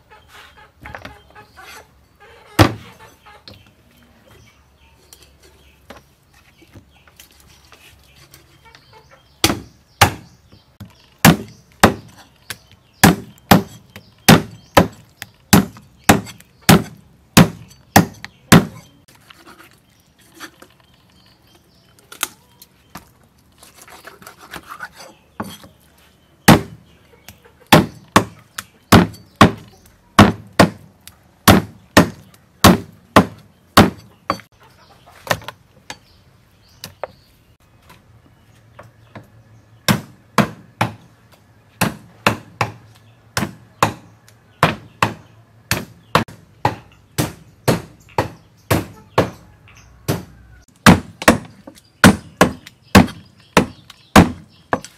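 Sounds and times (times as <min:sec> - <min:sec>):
cleaver chopping on wooden block: 0:09.4 - 0:10.3, 0:11.2 - 0:18.9, 0:26.5 - 0:26.8, 0:27.7 - 0:34.5, 0:41.8 - 0:42.8, 0:43.4 - 0:49.4, 0:50.1 - 0:54.9.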